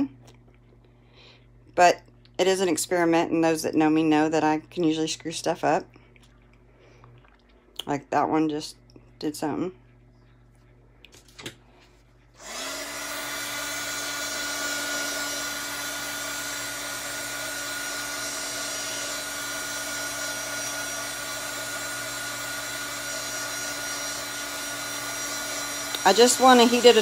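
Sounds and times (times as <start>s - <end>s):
heat gun fan blowing: 12.3s - 27.0s.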